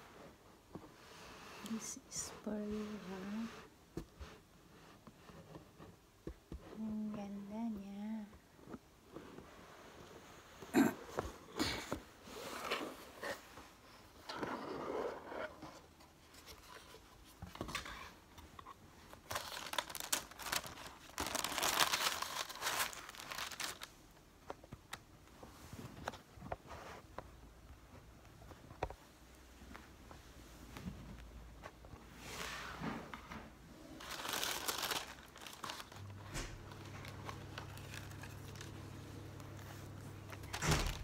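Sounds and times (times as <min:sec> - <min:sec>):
wrapping paper crinkling: 0:19.1 - 0:24.0, 0:33.9 - 0:41.0.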